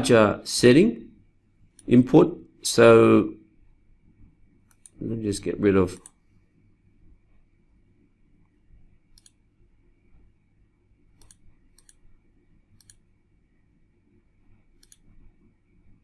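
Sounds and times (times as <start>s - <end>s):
faint low room hum: 0.0s - 16.0s
computer mouse clicks: 4.6s - 5.0s, 5.9s - 6.2s, 9.1s - 9.4s, 11.2s - 12.0s, 12.8s - 13.1s, 14.8s - 15.2s.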